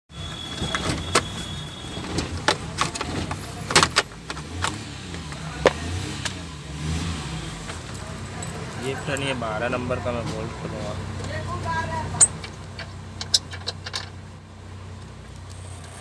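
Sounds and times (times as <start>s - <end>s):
metallic clicks and knocks: 12.2s - 14.2s.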